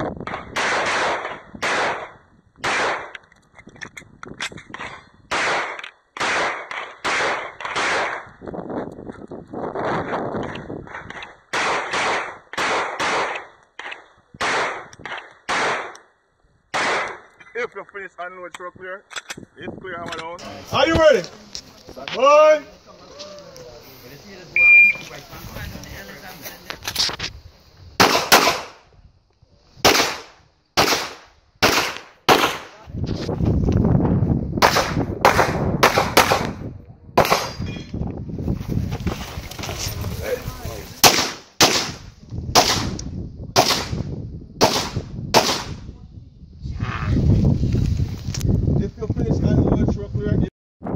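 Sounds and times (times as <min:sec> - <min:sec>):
pistol shots: 0:00.2 - 0:03.2, 0:04.7 - 0:08.3, 0:10.9 - 0:16.0, 0:16.7 - 0:17.3, 0:28.0 - 0:28.8, 0:29.8 - 0:32.8, 0:34.6 - 0:36.6, 0:37.2 - 0:37.6, 0:41.0 - 0:43.0, 0:43.6 - 0:45.8.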